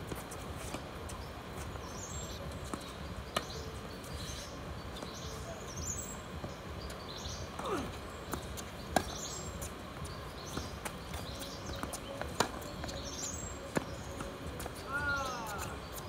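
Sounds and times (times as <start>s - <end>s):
outdoor background noise: 0.0s - 16.0s
tennis ball bouncing on court: 2.6s - 4.2s, 6.4s - 15.7s
tennis ball hit by racket: 10.5s - 12.6s.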